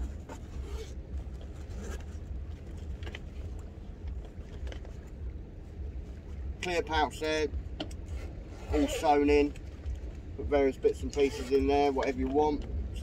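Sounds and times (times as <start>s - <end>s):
bag fabric rustling: 0.0s - 3.6s
boat low rumble: 0.0s - 13.0s
zip pulled open: 0.3s - 1.0s, 8.2s - 9.3s, 11.1s - 11.6s.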